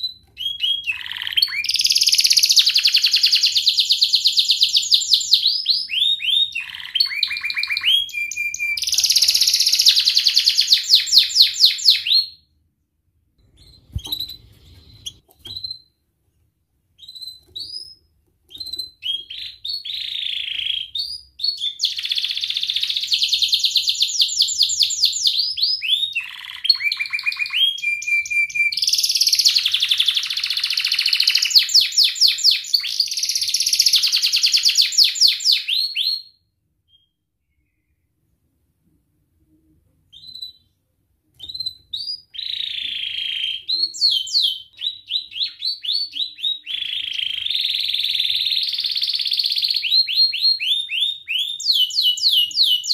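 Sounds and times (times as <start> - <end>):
canary singing trills: 0.0 - 12.4, 13.5 - 16.0, 17.0 - 36.1.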